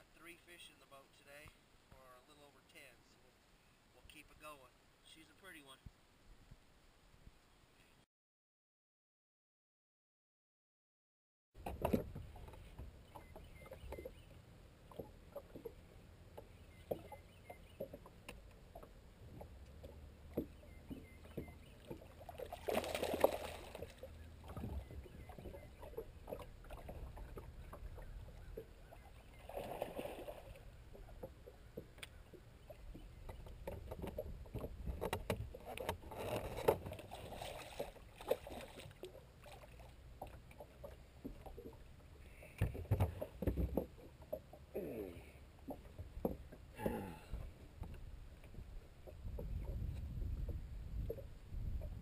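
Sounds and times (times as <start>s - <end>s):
water splashes: 11.6s - 52.0s
waves lapping against boat hull: 11.6s - 52.0s.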